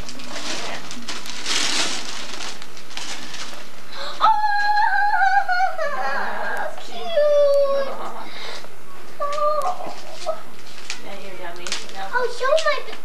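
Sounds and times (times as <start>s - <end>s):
wrapping paper rustling and tearing: 0.0s - 4.8s, 9.2s - 13.0s
high drawn-out wail: 4.0s - 8.2s.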